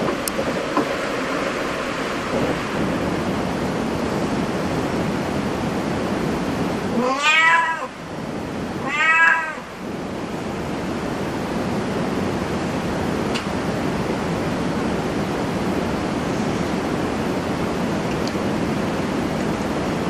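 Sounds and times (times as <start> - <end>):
steady background hiss: 0.0 - 20.0
cat meowing: 6.9 - 8.0, 8.8 - 9.7.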